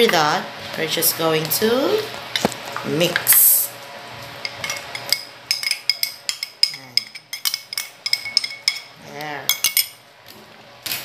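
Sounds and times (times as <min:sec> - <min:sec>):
spoon clinking against pot: 0:04.5 - 0:08.9, 0:09.5 - 0:10.0.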